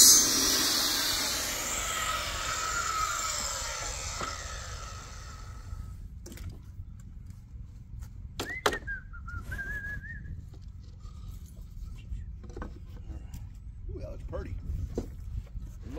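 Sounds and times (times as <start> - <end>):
circular saw spinning down: 0.0 - 5.9.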